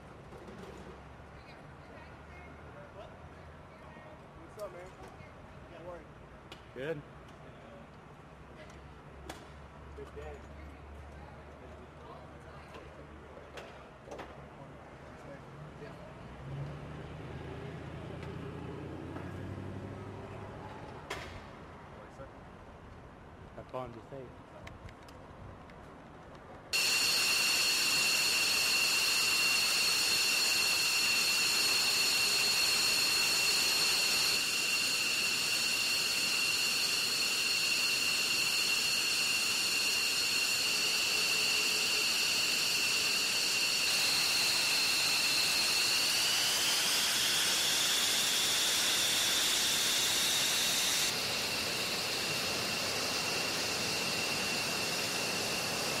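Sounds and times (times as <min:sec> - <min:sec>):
jet engines whining: 0:26.8 - 0:56.0.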